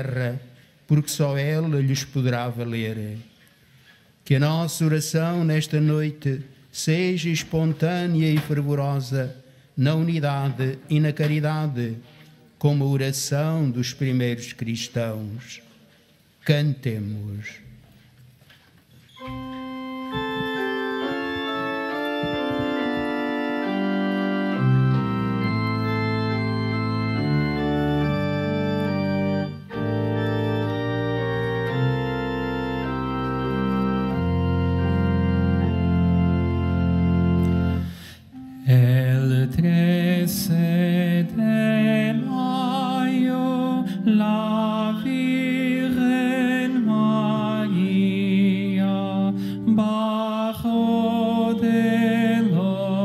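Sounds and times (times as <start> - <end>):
organ playing slow chords: 19.2 - 53.0.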